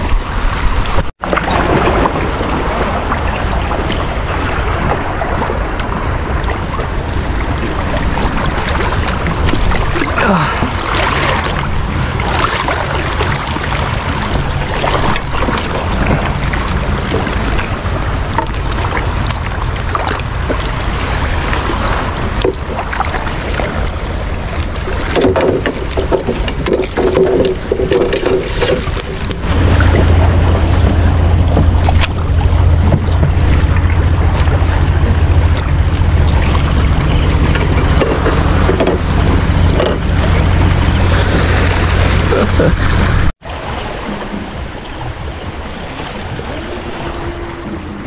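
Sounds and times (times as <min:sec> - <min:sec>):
sea water sloshing and splashing: 0:00.0 - 0:48.0
wind buffeting microphone: 0:00.0 - 0:48.0.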